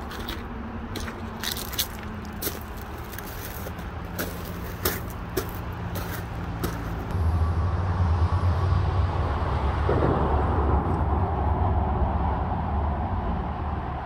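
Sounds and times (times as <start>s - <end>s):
footsteps crunching through brush: 0.0s - 7.1s
loud low rumble: 7.0s - 14.0s.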